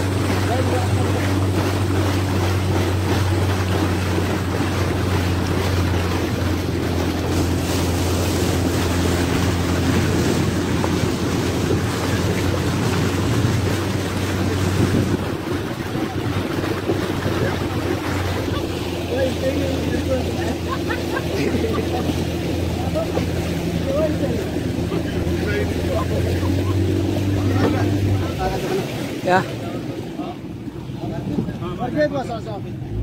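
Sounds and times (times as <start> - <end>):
outboard motor running: 0.0 - 33.0
rushing water: 0.0 - 33.0
wind noise on microphone: 8.9 - 18.6.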